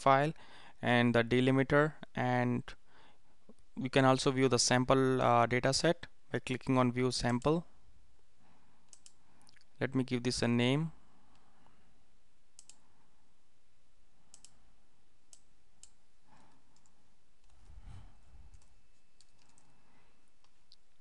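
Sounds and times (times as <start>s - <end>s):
mouse clicks: 8.9s - 9.6s, 12.6s - 12.8s, 14.3s - 14.6s.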